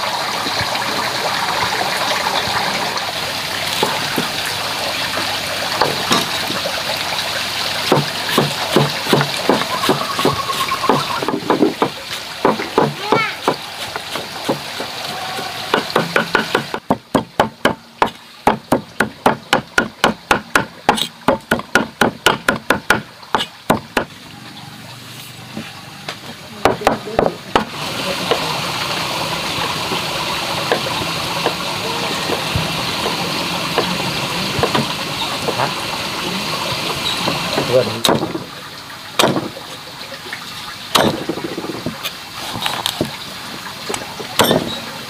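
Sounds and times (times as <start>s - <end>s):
running water hiss: 0.0s - 45.0s
knife chopping on cutting board: 7.9s - 14.6s, 15.7s - 24.1s.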